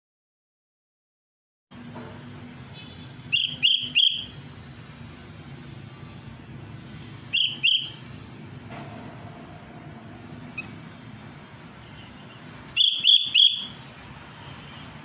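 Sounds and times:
steady low background hum: 1.8 - 14.8
bird whistled calls: 3.3 - 4.4, 7.3 - 8.0, 12.7 - 13.8.

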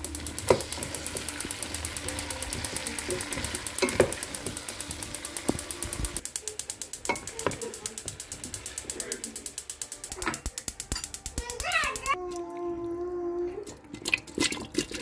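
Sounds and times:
fast mechanical ticking: 0.0 - 12.2
spatula knocking steel pot: 0.2 - 12.2.

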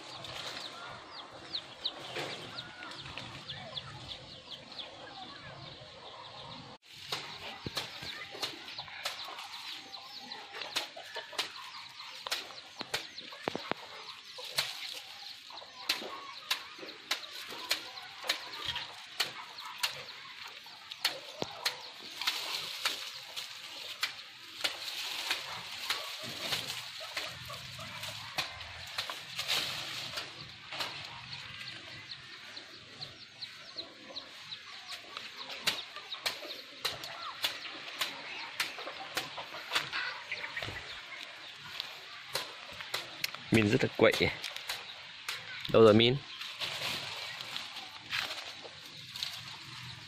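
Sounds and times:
twigs and leaves cracking: 0.0 - 3.8, 6.8 - 50.0
birds chirping: 0.0 - 50.0
chickens clucking: 0.0 - 50.0.

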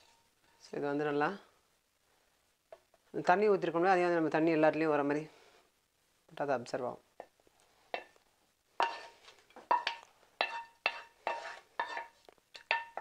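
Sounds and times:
wooden spatula scraping a pan: 0.0 - 0.7, 8.8 - 13.0.

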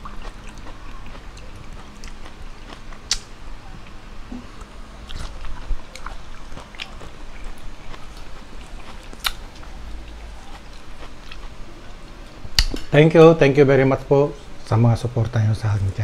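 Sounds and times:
chewing food with wet clicks: 0.0 - 4.0, 4.6 - 12.9.

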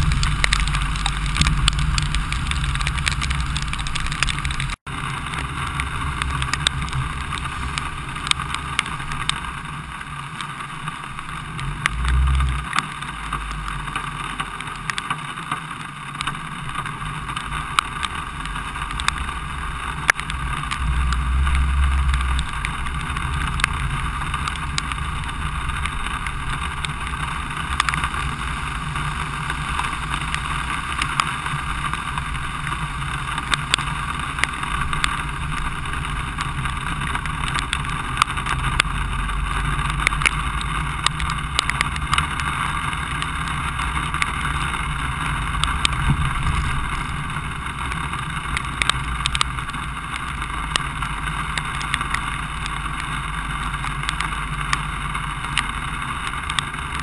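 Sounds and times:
sharp ticks: 0.0 - 9.4, 28.9 - 57.0
tyres hissing on wet street: 0.0 - 57.0
wind rumbling on microphone: 0.0 - 57.0.

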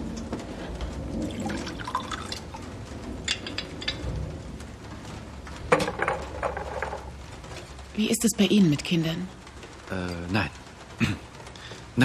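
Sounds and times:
liquor pouring into glass: 1.3 - 2.6.

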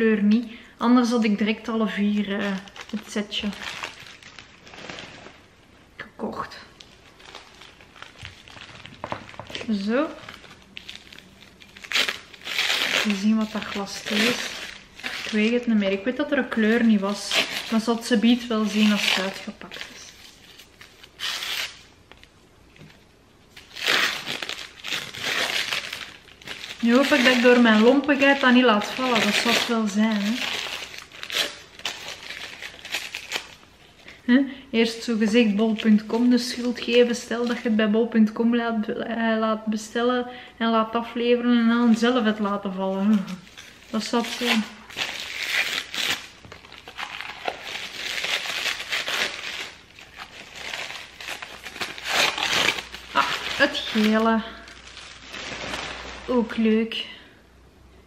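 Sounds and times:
paper wrapping rustling: 2.1 - 5.5, 6.8 - 22.9, 23.5 - 34.1, 41.8 - 56.7.

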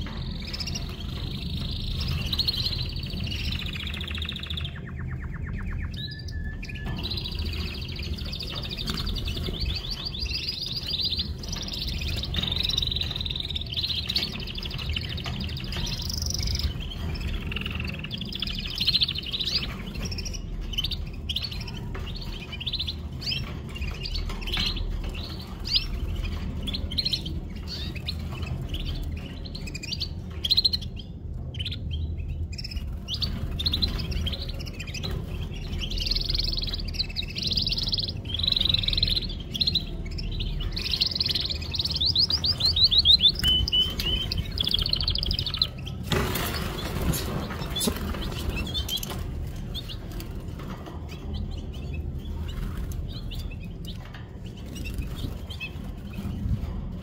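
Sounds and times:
canaries singing: 0.0 - 57.0.

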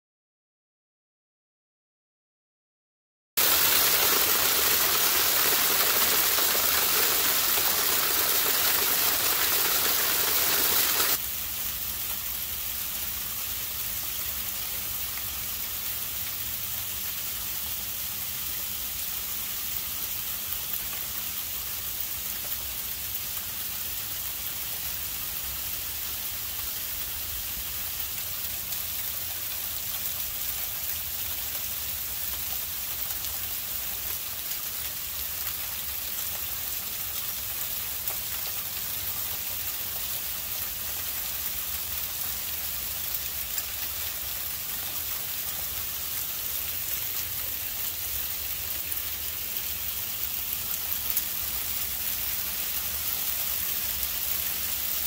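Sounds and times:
sleet hissing: 3.4 - 11.2.

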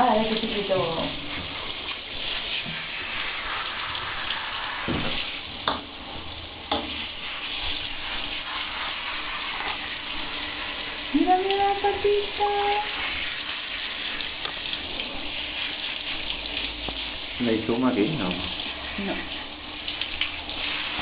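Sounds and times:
shower head spraying water: 0.0 - 21.0.

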